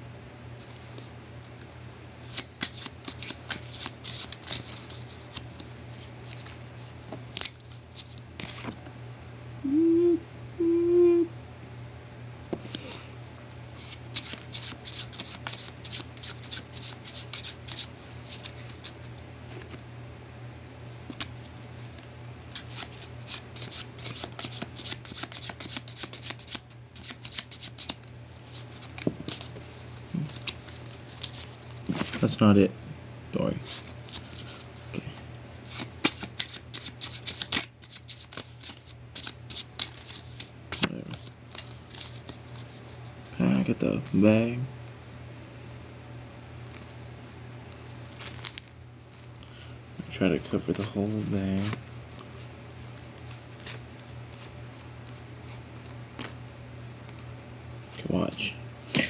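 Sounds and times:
playing cards being shuffled: 0:02.2 - 0:06.6, 0:13.8 - 0:19.8, 0:21.0 - 0:32.4, 0:33.6 - 0:44.2, 0:48.1 - 0:48.7, 0:50.4 - 0:57.2
person humming: 0:09.6 - 0:11.4.

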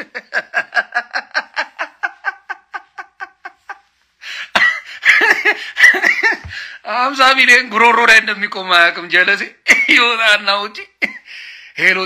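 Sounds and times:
man laughing hard: 0:00.0 - 0:06.7
person talking: 0:06.4 - 0:11.0.

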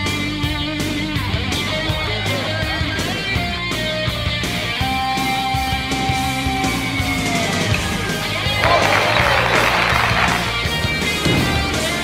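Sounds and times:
rock music with electric guitar: 0:00.0 - 0:12.0.

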